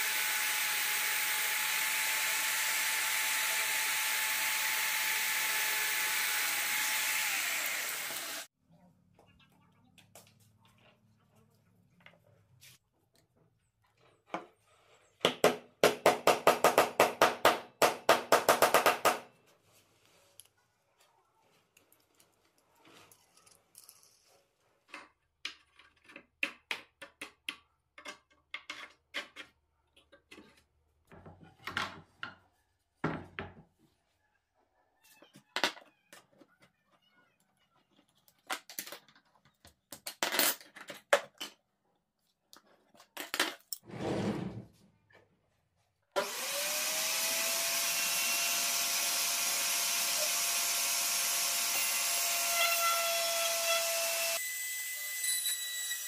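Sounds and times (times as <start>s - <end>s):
power tool motor whining: 0.0s - 8.5s, 46.2s - 54.4s.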